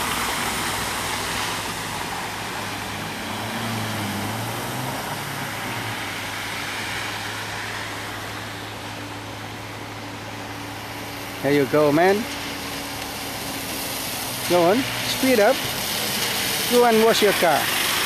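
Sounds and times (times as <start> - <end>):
car engine: 0.0 - 18.0
tyre spray hiss: 11.0 - 18.0.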